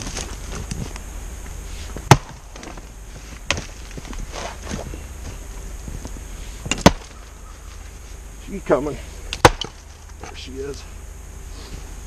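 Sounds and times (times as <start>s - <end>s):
axe chopping wood: 2.1s - 2.8s, 6.6s - 7.2s, 9.3s - 9.9s.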